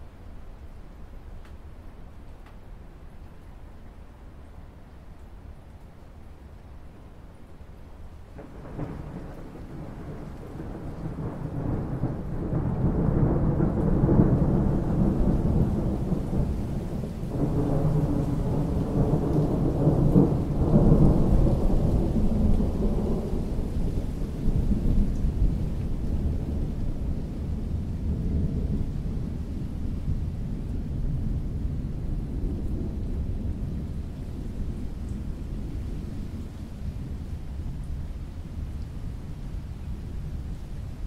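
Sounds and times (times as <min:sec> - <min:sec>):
steady rain: 0:00.0 - 0:41.0
rolling thunder rumble: 0:08.3 - 0:41.0.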